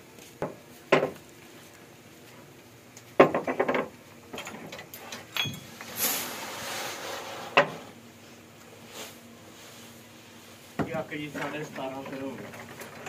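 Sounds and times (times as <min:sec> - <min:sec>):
grain pouring into metal hopper: 0:05.8 - 0:07.4, 0:11.1 - 0:13.0.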